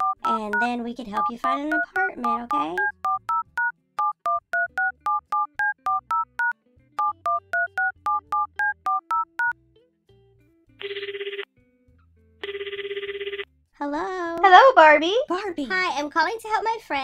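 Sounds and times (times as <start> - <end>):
keypad two-tone beeps: 0.0 - 9.5
telephone trilling ring: 10.8 - 11.5, 12.4 - 13.5.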